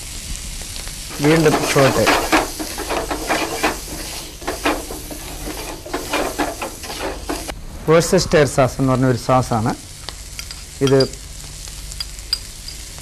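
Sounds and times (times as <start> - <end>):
food sizzling in a frying pan: 0.0 - 7.6, 8.9 - 13.0
wooden spatula scraping pan: 1.1 - 7.5.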